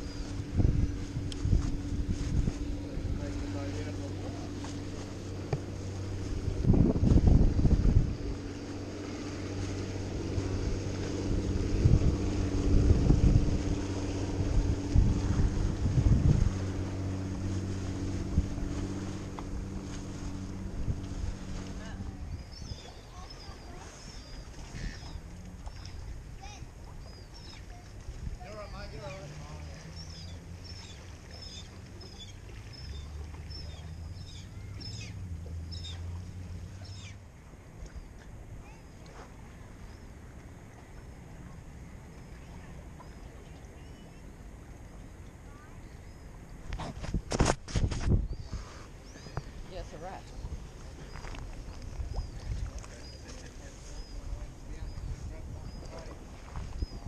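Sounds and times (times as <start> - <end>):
wind buffeting microphone: 0.0 - 29.3, 46.3 - 57.0
birds chirping: 0.0 - 46.8, 48.1 - 57.0
low steady rumble: 0.0 - 57.0
outboard motor running: 0.0 - 57.0
propeller churning water: 0.0 - 57.0.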